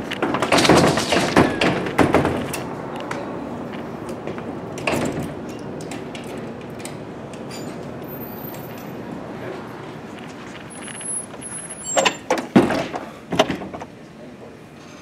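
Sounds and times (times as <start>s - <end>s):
door thumping and handle rattling: 0.2s - 2.7s.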